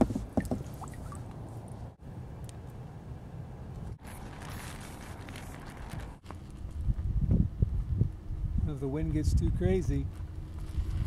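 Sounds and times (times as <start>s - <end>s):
wind buffeting microphone: 5.9s - 11.0s.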